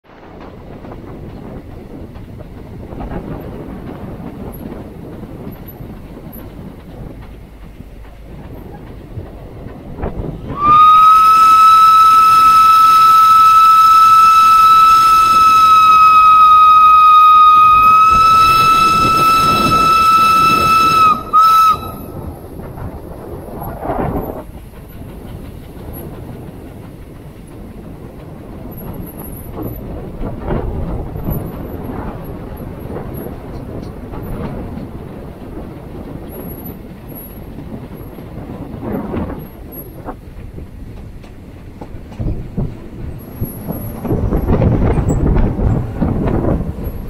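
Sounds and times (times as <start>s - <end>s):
steam locomotive rail clatter: 0.0s - 47.0s
steam whistle: 10.5s - 22.2s.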